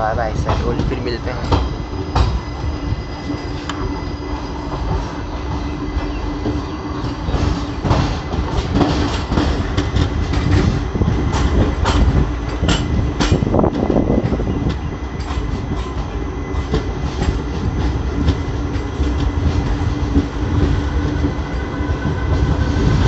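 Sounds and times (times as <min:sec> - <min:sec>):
train rumble: 0:00.0 - 0:23.0
wheels clacking over rail joints: 0:04.7 - 0:21.7.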